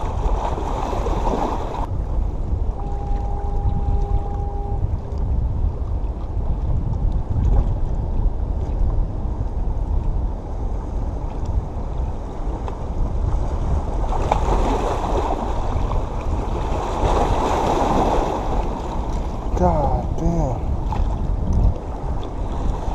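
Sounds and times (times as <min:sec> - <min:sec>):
seawater washing against rocks: 0:00.0 - 0:01.9, 0:12.4 - 0:22.9
wind rumbling on microphone: 0:00.0 - 0:22.9.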